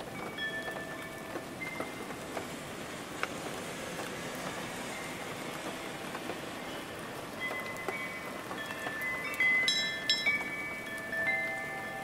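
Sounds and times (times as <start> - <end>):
faint wind chime: 0.0 - 2.2, 4.9 - 5.3, 6.5 - 12.0
steady rain patter: 0.0 - 12.0.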